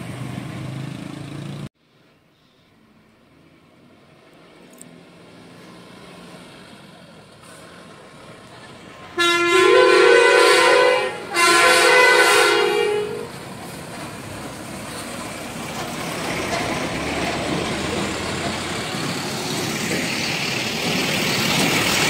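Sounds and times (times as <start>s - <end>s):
steady engine: 0.0s - 1.7s, 3.4s - 22.0s
two-note truck horn blasts: 9.2s - 13.3s.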